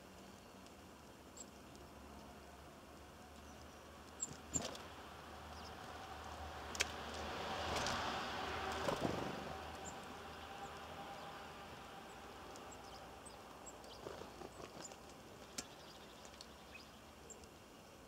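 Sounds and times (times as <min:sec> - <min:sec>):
small birds chirping: 0:00.0 - 0:07.2, 0:08.8 - 0:18.0
passing vehicle rumble: 0:04.7 - 0:13.2.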